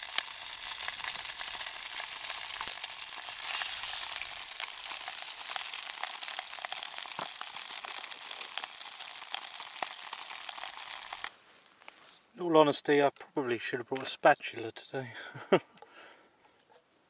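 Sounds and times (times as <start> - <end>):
food sizzling in a pan: 0.0 - 11.3
oil popping and crackling: 0.0 - 12.0.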